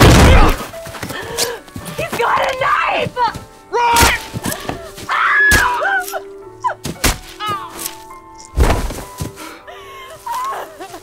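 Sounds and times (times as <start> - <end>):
heavy thuds of a struggle: 8.6 - 9.4.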